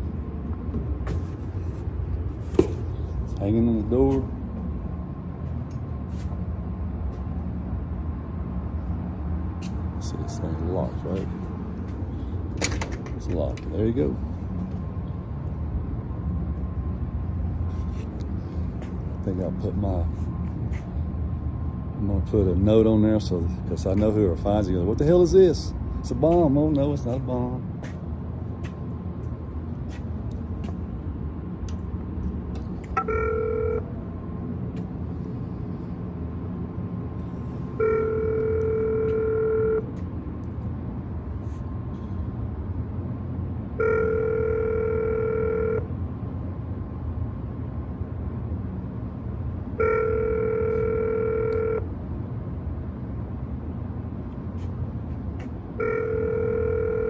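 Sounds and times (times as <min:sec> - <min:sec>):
steady low hum: 0:00.0 - 0:57.0
intercom ringback tone: 0:33.0 - 0:33.9, 0:37.8 - 0:39.9, 0:43.8 - 0:45.9, 0:49.8 - 0:51.9, 0:55.8 - 0:57.0.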